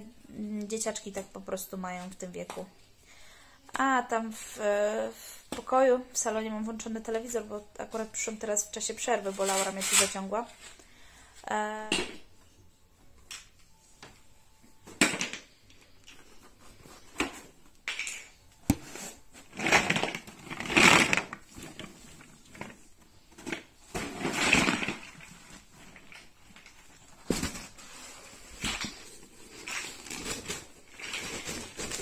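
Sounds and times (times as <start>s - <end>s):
plastic blocks rattling: 19.4s - 32.0s.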